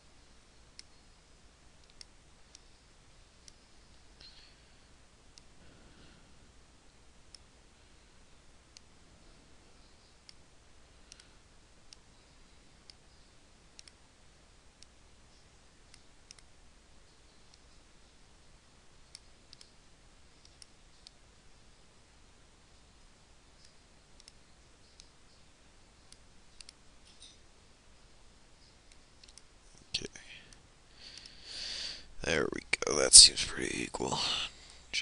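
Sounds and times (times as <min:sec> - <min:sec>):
faint steady hum: 0:00.0 - 0:35.0
computer mouse clicks: 0:01.8 - 0:02.7, 0:11.1 - 0:11.3, 0:12.8 - 0:14.0, 0:15.9 - 0:16.5, 0:19.1 - 0:19.8, 0:20.4 - 0:21.2, 0:23.6 - 0:25.4, 0:26.0 - 0:27.4, 0:28.6 - 0:29.5.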